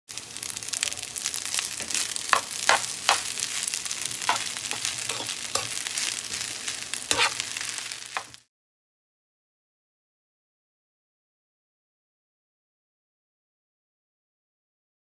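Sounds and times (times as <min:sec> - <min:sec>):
rice sizzling in a pan: 0:00.1 - 0:08.5
spatula scraping a pan: 0:00.8 - 0:08.4.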